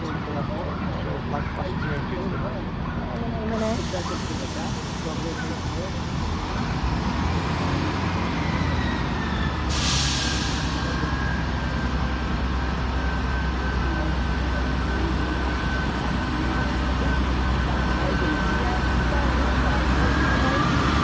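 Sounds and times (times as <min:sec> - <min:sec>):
high engine whine: 0:00.0 - 0:21.0
train diesel engines rumbling: 0:00.0 - 0:21.0
air release hiss: 0:09.7 - 0:10.8.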